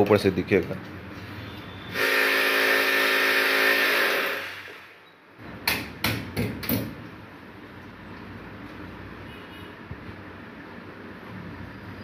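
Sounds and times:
electric drill whining: 2.3 - 4.9
sharp knocks: 5.6 - 7.0.

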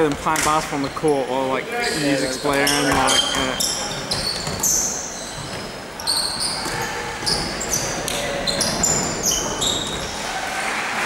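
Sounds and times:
sneakers squeaking on court: 0.0 - 1.2, 1.8 - 10.3
basketball bouncing: 2.6 - 10.1.

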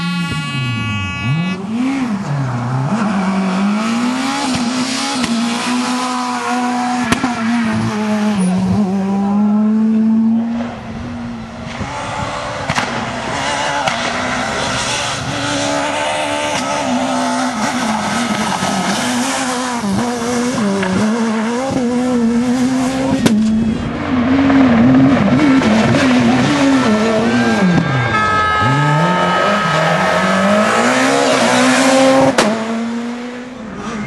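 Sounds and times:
rally car engines revving: 0.0 - 34.0
sharp crack: 12.6 - 13.2, 13.8 - 14.4.

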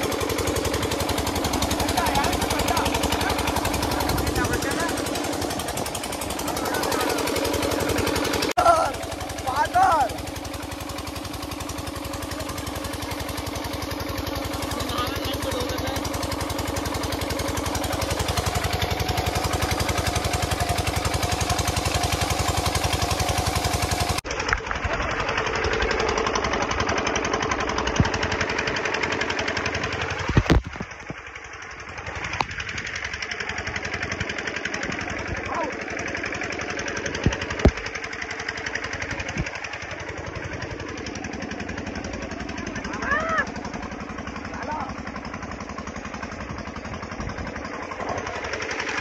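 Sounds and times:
pump engine thudding: 0.0 - 49.0.

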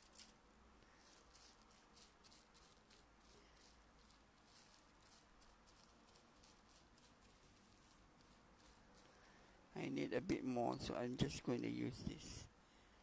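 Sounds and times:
paintbrush scratching on canvas: 0.0 - 9.3.

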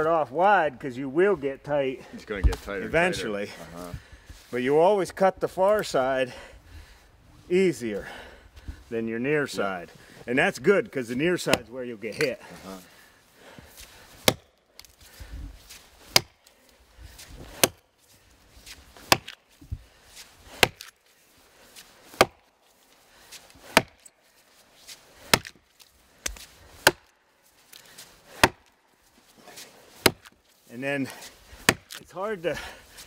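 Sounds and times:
axe chopping into log: 11.4 - 12.3, 14.2 - 14.6, 16.1 - 16.4, 17.4 - 17.8, 19.0 - 19.4, 20.5 - 21.0, 22.1 - 22.5, 23.6 - 24.1, 25.2 - 25.6, 26.2 - 27.1, 28.3 - 28.7, 30.0 - 30.4, 31.6 - 32.0.

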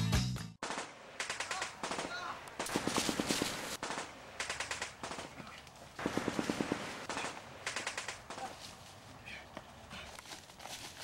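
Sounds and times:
automatic gunfire bursts: 0.6 - 5.4, 6.0 - 8.4.

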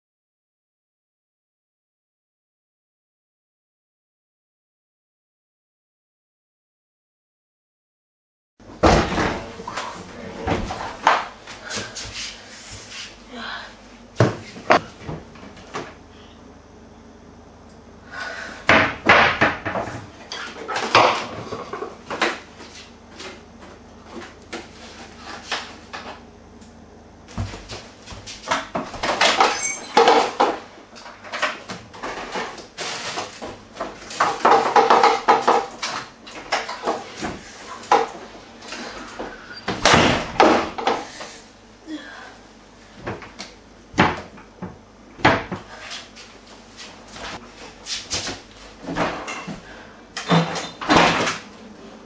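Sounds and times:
things clattering on shelves: 18.7 - 22.5, 28.4 - 41.1, 47.2 - 51.5.

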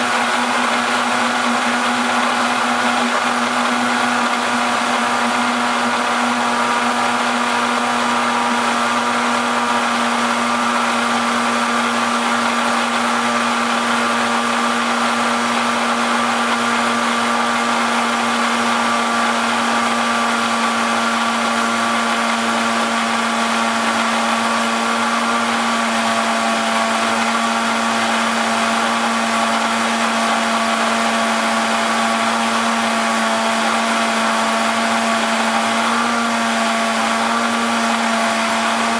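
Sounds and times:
blender motor humming: 0.0 - 38.9.

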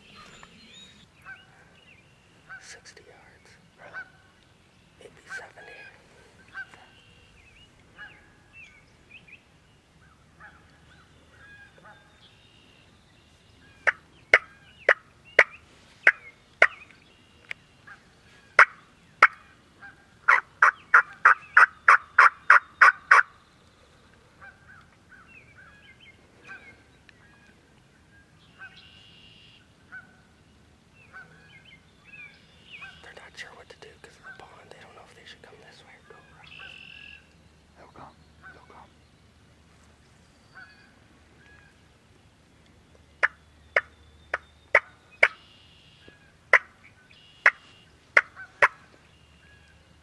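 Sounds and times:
small birds chirping: 0.0 - 50.0
turkey calling: 18.6 - 23.3, 43.2 - 48.8
turkey yelps: 18.6 - 23.3.

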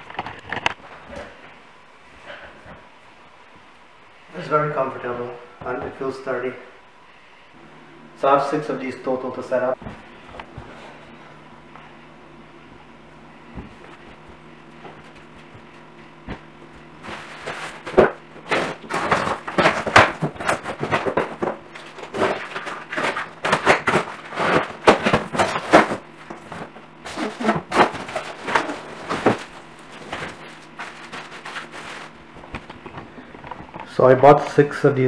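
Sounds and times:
cardboard and plastic rustling: 13.5 - 33.8.

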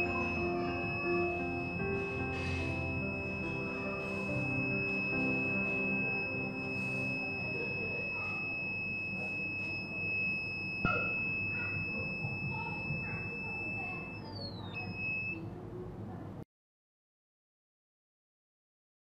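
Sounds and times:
high-pitched buzzer tone: 0.0 - 15.4.

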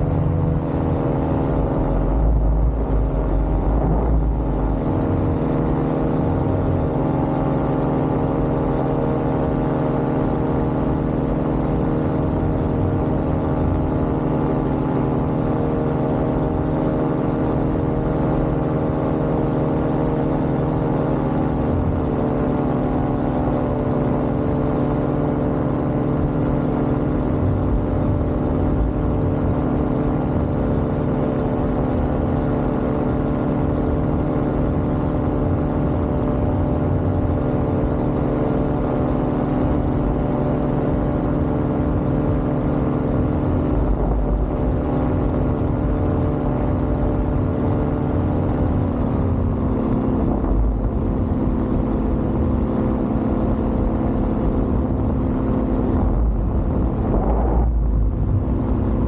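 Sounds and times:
paramotor engine droning: 0.0 - 59.0.

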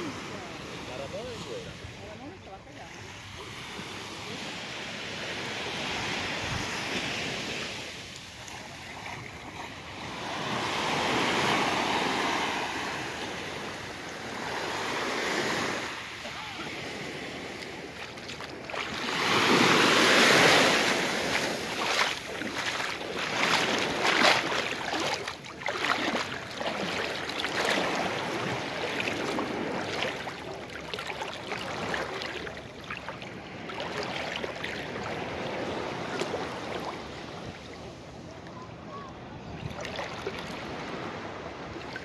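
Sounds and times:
seawater sloshing around legs: 17.5 - 37.0.

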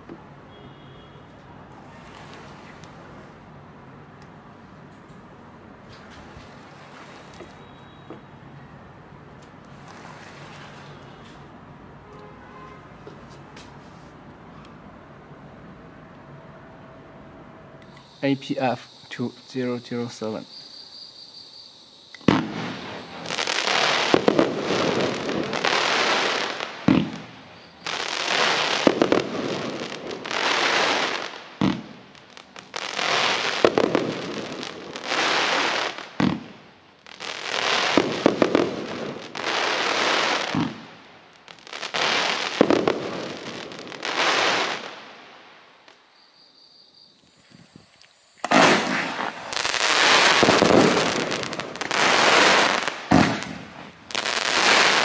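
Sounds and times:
firework crackling: 0.0 - 4.4, 5.8 - 8.4, 9.3 - 11.8, 17.8 - 55.0
firework launch thumps: 22.2 - 22.8, 26.9 - 27.3, 40.5 - 40.9, 47.4 - 51.9, 53.1 - 54.0.

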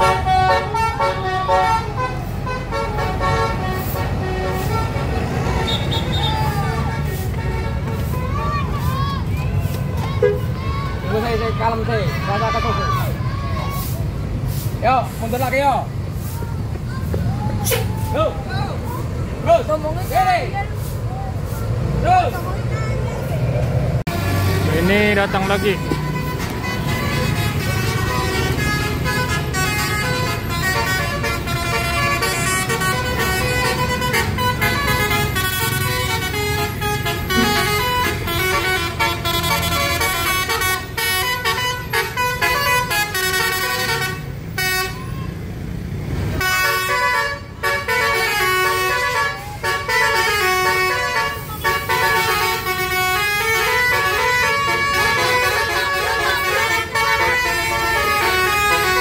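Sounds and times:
multi-tone musical bus horns: 0.0 - 13.0, 24.1 - 45.4, 46.3 - 59.0
coach engine running: 20.8 - 45.0.

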